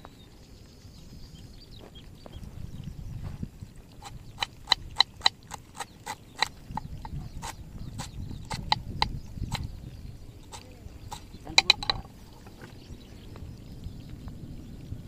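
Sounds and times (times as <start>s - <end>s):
knife chopping on wooden board: 4.0s - 9.6s.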